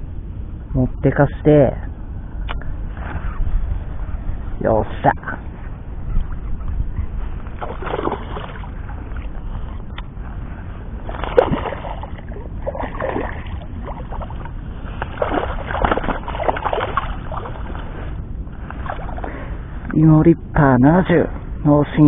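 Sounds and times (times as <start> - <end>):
low rumble: 0.0 - 21.8
fish splashing at surface: 7.6 - 9.4, 11.0 - 18.0.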